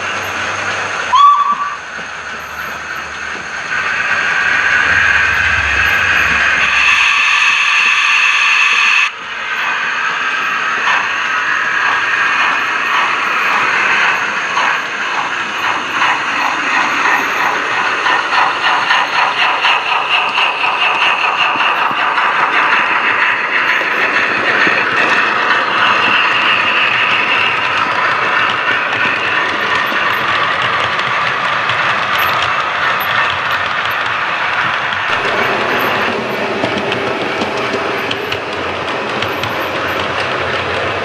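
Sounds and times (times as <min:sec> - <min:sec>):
hiss of steam: 0:00.0 - 0:40.8
steam whistle blast: 0:01.1 - 0:01.9, 0:06.6 - 0:09.1
locomotive exhaust chuffs: 0:09.7 - 0:41.0.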